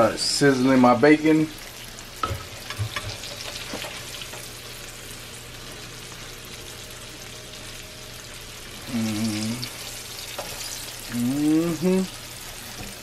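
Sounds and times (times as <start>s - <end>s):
fish frying in hot oil: 1.0s - 13.0s
person humming: 8.8s - 9.8s, 11.0s - 12.3s.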